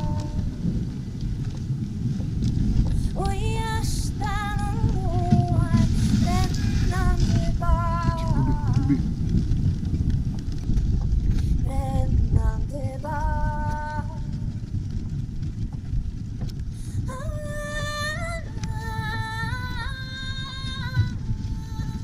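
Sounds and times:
music with woman singing: 0:00.0 - 0:00.8, 0:02.9 - 0:09.2, 0:11.5 - 0:14.6, 0:16.8 - 0:22.0
sled runners rumbling on snow: 0:00.0 - 0:22.0.

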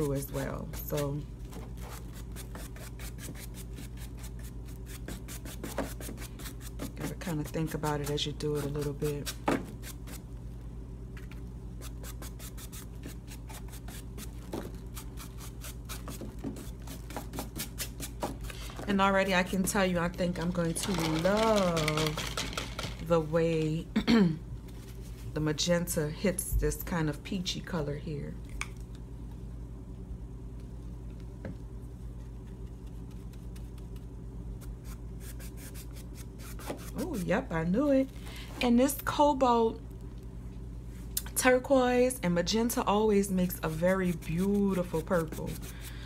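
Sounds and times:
steady low hum: 0:00.0 - 0:46.0
paintbrush scratching on glitter: 0:43.5 - 0:45.7.

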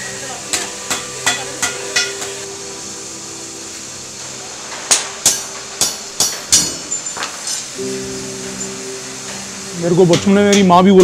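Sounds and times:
hammer clanging on metal: 0:00.5 - 0:02.4, 0:04.9 - 0:07.6, 0:08.4 - 0:11.0.

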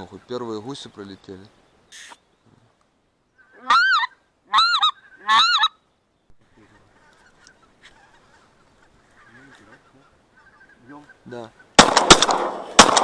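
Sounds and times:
goose honking: 0:03.4 - 0:05.8.

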